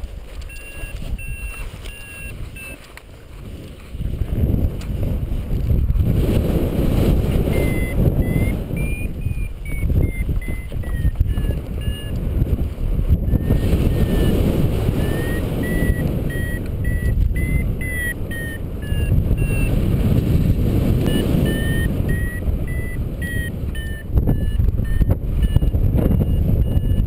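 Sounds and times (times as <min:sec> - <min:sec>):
wind rushing over microphone: 0:00.0 - 0:27.0
variometer beeping: 0:00.4 - 0:02.9, 0:07.4 - 0:12.3, 0:13.3 - 0:19.8, 0:21.0 - 0:27.0.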